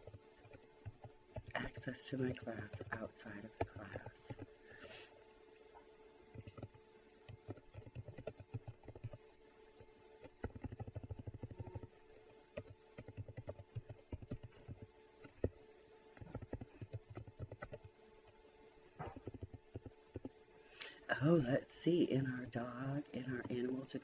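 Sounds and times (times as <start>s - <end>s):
computer keyboard typing: 0.0s - 4.9s, 6.3s - 9.2s, 10.2s - 15.5s, 16.2s - 17.9s, 19.0s - 20.3s.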